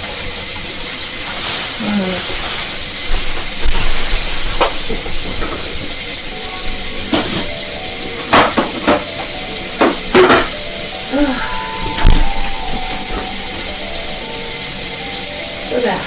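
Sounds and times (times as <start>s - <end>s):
food sizzling in a frying pan: 0.0s - 16.0s
dishes and utensils clinking: 3.3s - 15.5s.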